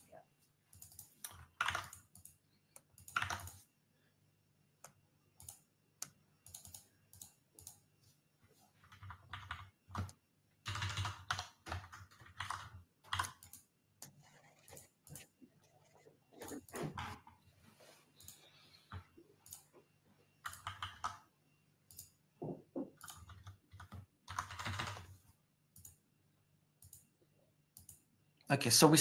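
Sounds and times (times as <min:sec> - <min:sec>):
typing on computer keyboard: 0:00.7 - 0:03.6, 0:06.4 - 0:07.8, 0:08.8 - 0:13.7, 0:20.4 - 0:21.2, 0:23.0 - 0:25.1.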